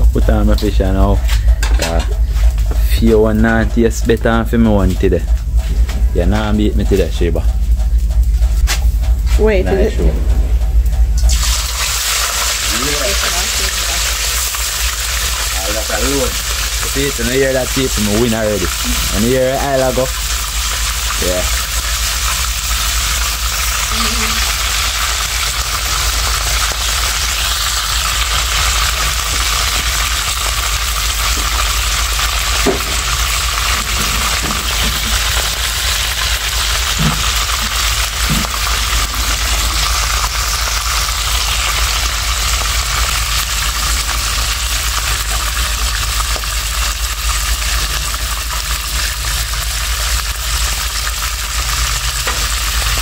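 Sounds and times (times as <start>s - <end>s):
low steady rumble: 0.0s - 53.0s
fish sizzling in oil: 11.3s - 53.0s.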